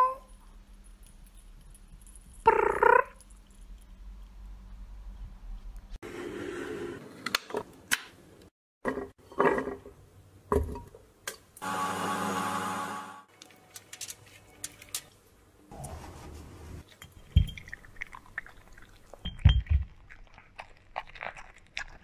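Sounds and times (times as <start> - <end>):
electric blender running: 11.6 - 13.2.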